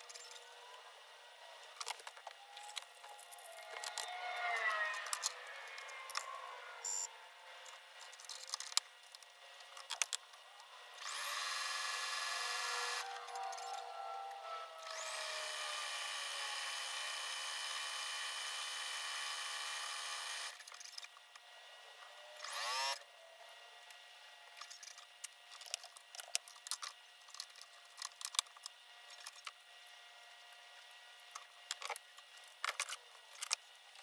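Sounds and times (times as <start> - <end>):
sewing machine motor whirring: 1.6 - 21.1, 22.2 - 23.0.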